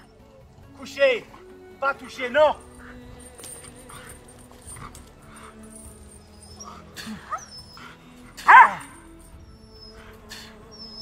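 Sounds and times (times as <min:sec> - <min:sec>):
background music: 0:00.0 - 0:11.0
dog whining: 0:03.8 - 0:11.0
dog barking: 0:08.4 - 0:09.0.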